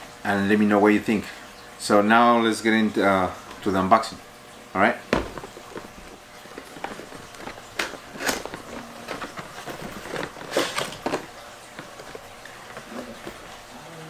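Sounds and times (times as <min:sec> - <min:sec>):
packaging rustling and scraping: 0:05.2 - 0:13.6
packaging crinkles: 0:05.4 - 0:13.7.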